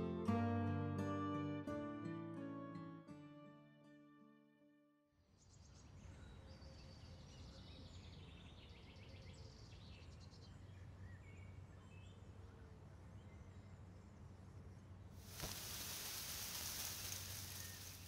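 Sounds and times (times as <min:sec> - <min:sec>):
soft background music: 0:00.0 - 0:04.8
birds chirping: 0:15.4 - 0:18.0.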